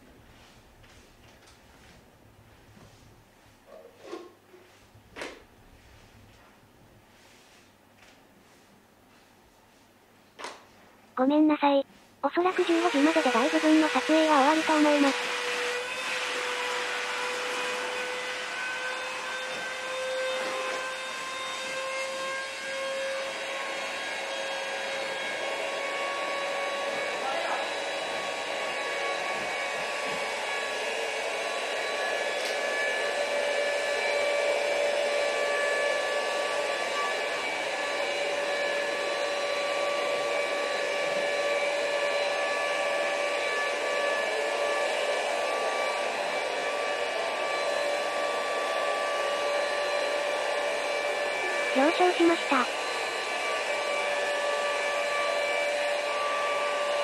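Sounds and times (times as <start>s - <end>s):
small electric motor whine: 12.5s - 57.0s.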